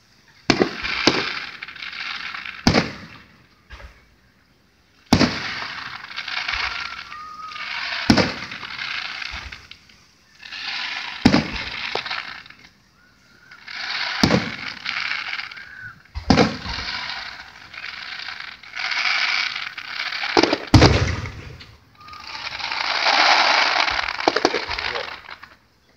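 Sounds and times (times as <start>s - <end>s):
firework shells bursting: 0.0s - 25.8s
firework crackling: 0.0s - 25.9s.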